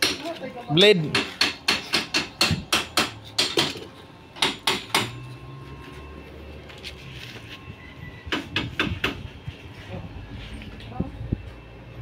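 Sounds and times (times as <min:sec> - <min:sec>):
hammer striking sheet metal: 0:01.0 - 0:03.8, 0:04.4 - 0:05.2.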